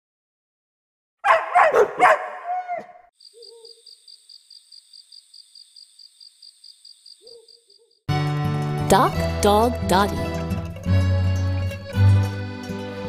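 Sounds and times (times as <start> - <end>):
crickets chirping: 3.1 - 8.0.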